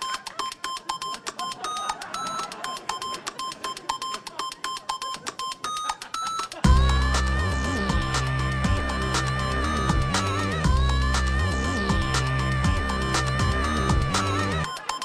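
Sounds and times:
rapid electronic beeping: 0.0s - 15.0s
loud electronic music: 6.6s - 15.0s.

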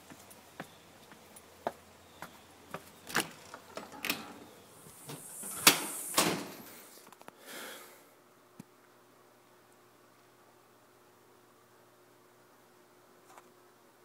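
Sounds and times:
short rushing hiss: 4.8s - 7.0s.

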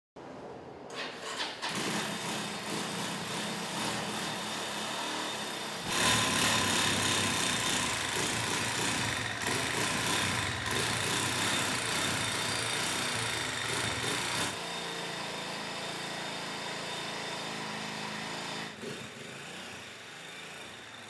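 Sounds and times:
motorcycle engine running: 5.9s - 15.2s.

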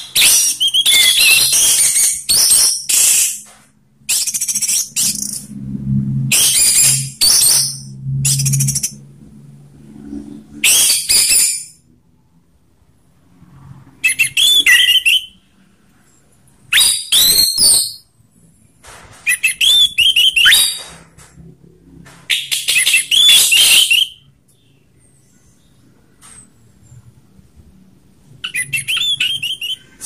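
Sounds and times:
thrush singing whistled notes: 0.0s - 3.4s, 6.3s - 9.0s, 14.0s - 15.4s, 19.3s - 20.9s, 22.3s - 24.3s, 28.4s - 30.0s.

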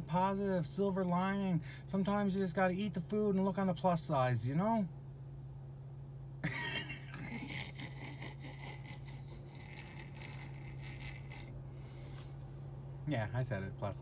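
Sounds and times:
steady low hum: 0.0s - 14.0s
stifled breathy laughter: 6.4s - 11.5s.

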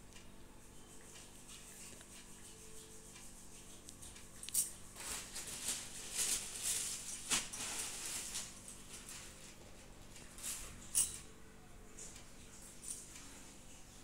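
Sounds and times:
plastic bag crinkling: 4.9s - 9.6s.

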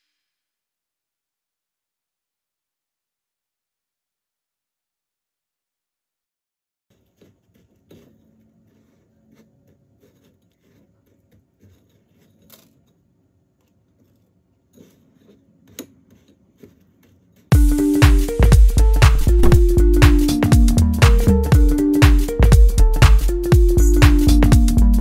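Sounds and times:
small clicks and light scraping: 6.9s - 17.5s
electronic dance music: 17.5s - 25.0s.

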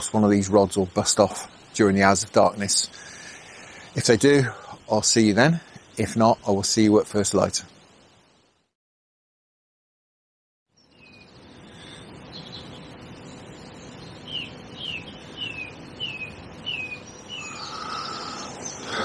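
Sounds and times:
low background hiss: 0.0s - 8.7s, 10.8s - 19.0s
bird chirping downward: 10.8s - 19.0s
bird calling: 11.0s - 19.0s.

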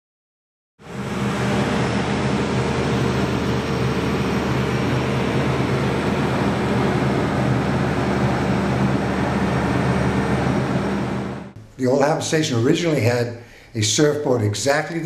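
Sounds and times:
crane engine running: 0.8s - 11.6s.

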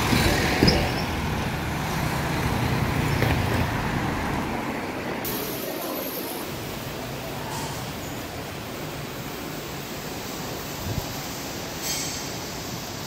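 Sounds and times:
passing cars rumble: 0.0s - 7.7s.

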